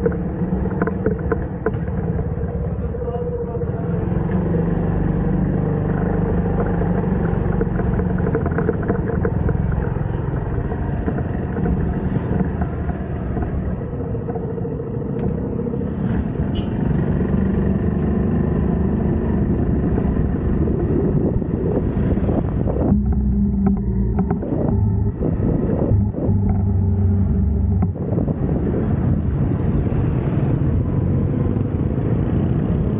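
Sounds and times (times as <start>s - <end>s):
moped engine running: 4.6s - 14.4s.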